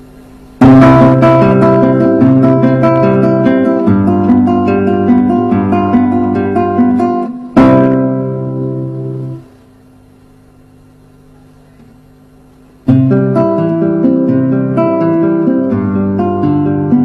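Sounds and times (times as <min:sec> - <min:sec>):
classical guitar arpeggios: 0:00.6 - 0:09.4, 0:12.9 - 0:17.0.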